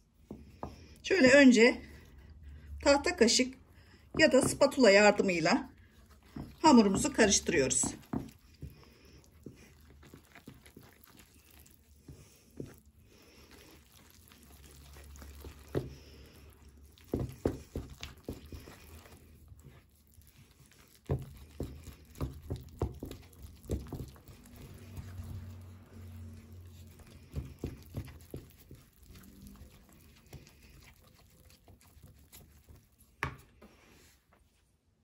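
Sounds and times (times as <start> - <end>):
wooden spoon scraping a bowl: 2.8 - 34.2.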